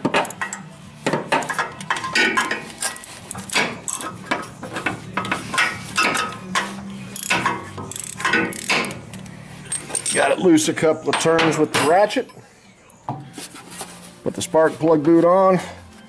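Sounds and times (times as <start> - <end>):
ratchet clicking: 7.1 - 9.3.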